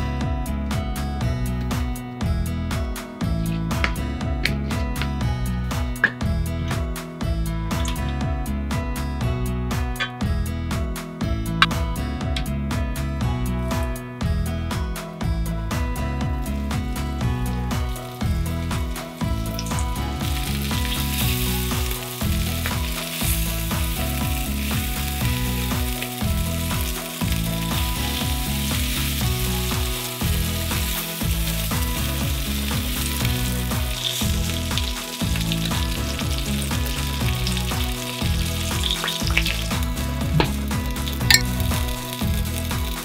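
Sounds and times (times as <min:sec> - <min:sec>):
food sizzling in frying oil: 0:17.5 - 0:43.0.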